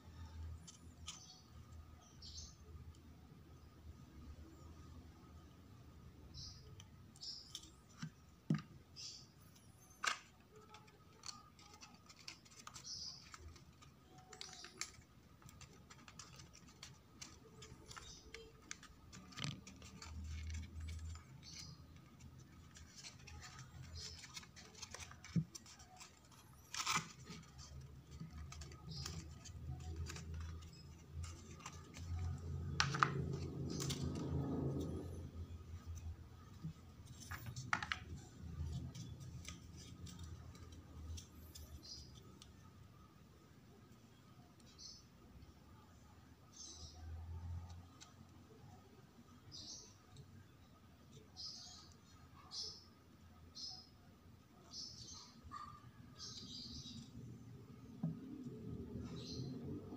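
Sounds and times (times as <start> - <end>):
cardstock paper rustling: 9.8 - 42.3.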